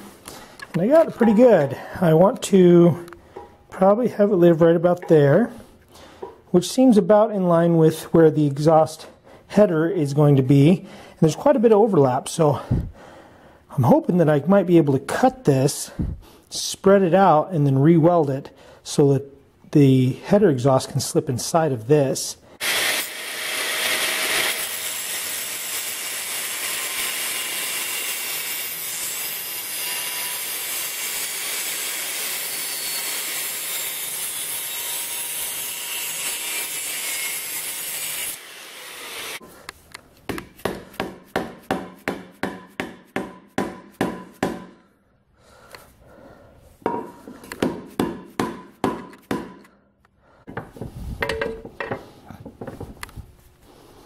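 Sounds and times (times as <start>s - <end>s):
angle grinder cutting steel pipe: 22.6s - 39.4s
hammer striking metal pipe: 40.3s - 44.8s, 46.8s - 49.7s, 50.5s - 52.0s.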